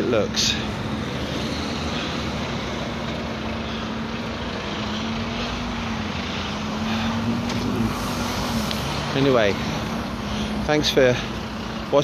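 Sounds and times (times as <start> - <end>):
outdoor traffic noise: 0.0 - 12.0
low engine drone: 0.5 - 11.9.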